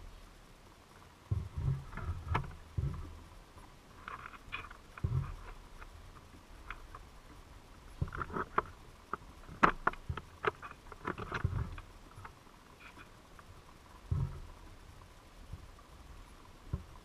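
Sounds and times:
dull underwater knocks: 1.2 - 7.0, 7.9 - 12.4, 14.0 - 14.8, 16.6 - 17.0
muffled underwater clicks: 1.3 - 7.1, 7.9 - 14.6.

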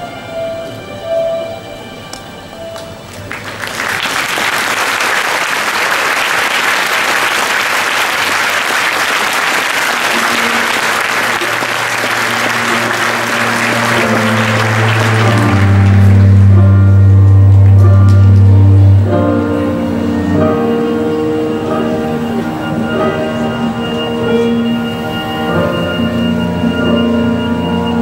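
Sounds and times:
music: 0.0 - 3.9, 9.4 - 28.0
audience applauding: 3.1 - 19.0.

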